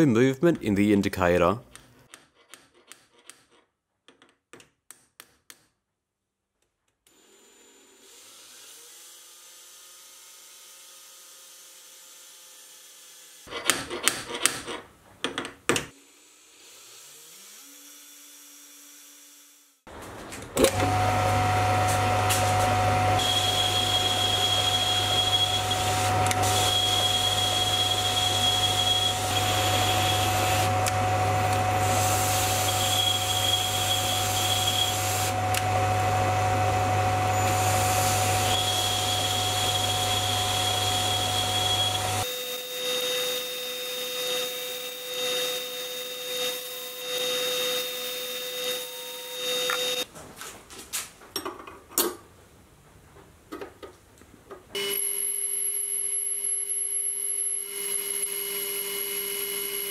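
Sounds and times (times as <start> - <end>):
lathe motor hum: 22.6 - 42.2.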